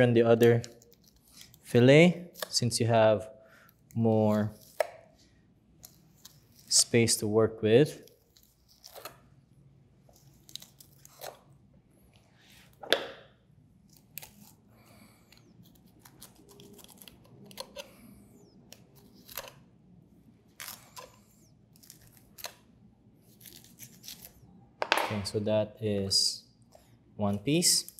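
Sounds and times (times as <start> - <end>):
knife scraping fish bones: 0.6 - 1.6, 13.9 - 14.7, 15.3 - 18.0, 20.6 - 22.6, 23.3 - 24.4.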